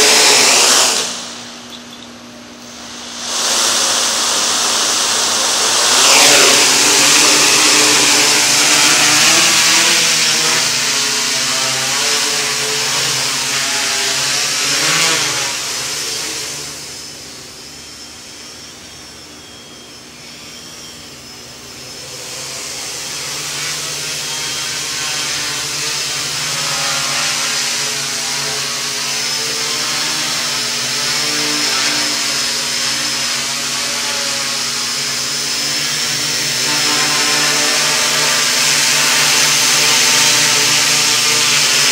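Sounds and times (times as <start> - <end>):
quadcopter motors buzzing: 0.0 - 41.9.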